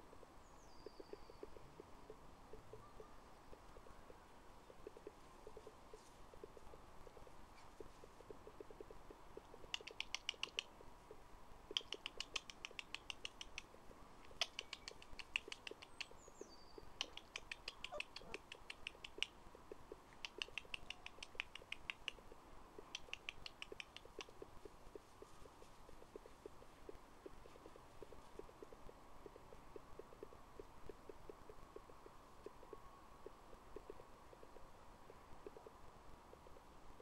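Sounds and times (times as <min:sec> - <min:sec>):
bird chattering in rapid clicks: 0:08.3 - 0:10.8, 0:11.6 - 0:36.6.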